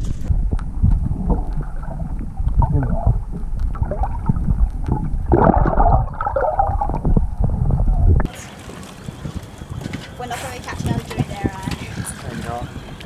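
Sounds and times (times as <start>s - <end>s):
low rumble: 0.0s - 9.5s
muffled underwater gurgling: 0.2s - 13.0s.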